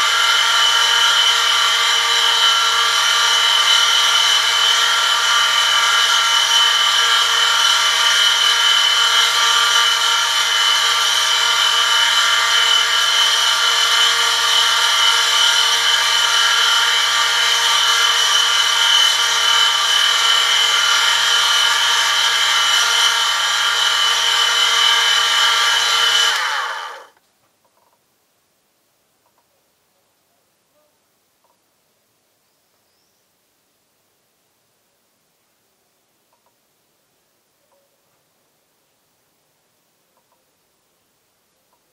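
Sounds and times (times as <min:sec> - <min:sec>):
electric motor hum: 0:00.0 - 0:27.1.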